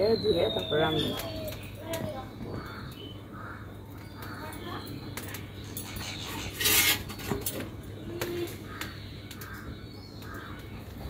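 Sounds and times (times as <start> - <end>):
crows cawing: 2.5 - 4.9, 8.1 - 11.0.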